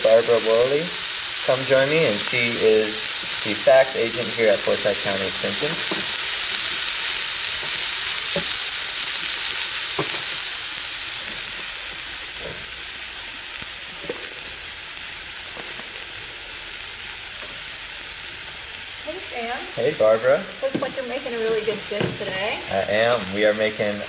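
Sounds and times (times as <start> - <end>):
vegetables sizzling in a pot: 0.0 - 24.0.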